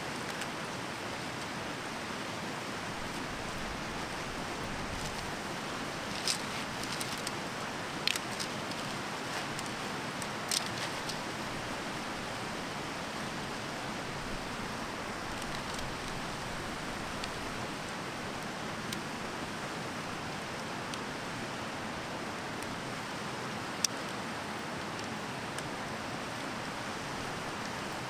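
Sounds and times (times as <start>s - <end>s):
stream running over rocks: 0.0s - 28.0s.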